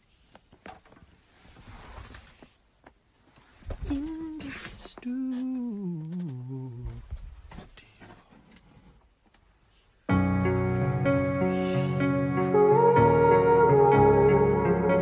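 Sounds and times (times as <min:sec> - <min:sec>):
man's voice sliding down: 0:03.9 - 0:07.1
keyboard music with piano chords: 0:10.1 - 0:15.0.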